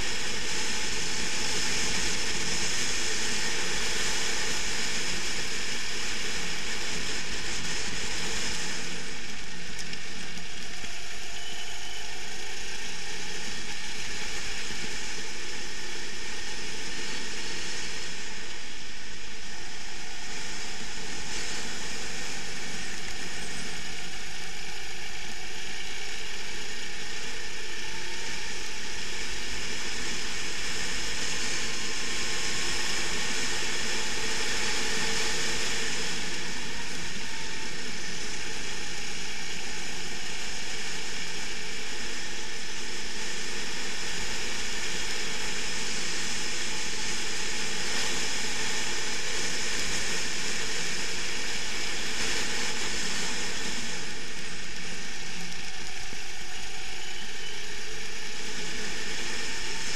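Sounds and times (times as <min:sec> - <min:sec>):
kart engine at speed: 0:00.0 - 0:59.9
wind hiss on microphone: 0:00.0 - 0:59.9.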